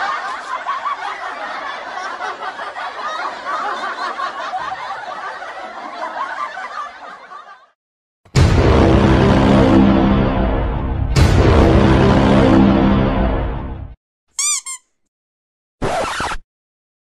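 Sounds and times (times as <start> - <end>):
crowd laughing: 0.0 - 7.8.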